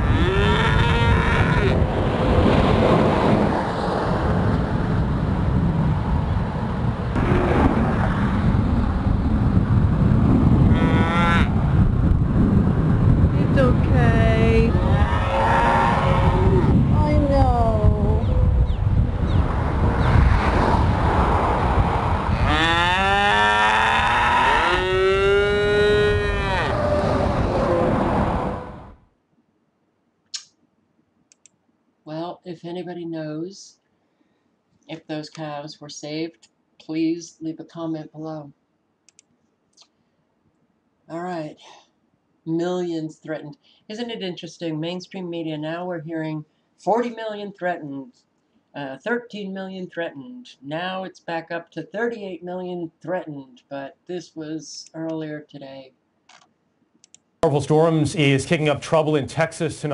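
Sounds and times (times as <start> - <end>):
calf bawling: 0.0 - 1.8, 10.7 - 11.5, 14.7 - 16.6, 22.4 - 27.1
calves mooing: 0.0 - 1.8, 10.7 - 11.6, 14.7 - 16.7, 22.3 - 27.1
wind buffeting microphone: 0.0 - 23.1, 24.6 - 29.0.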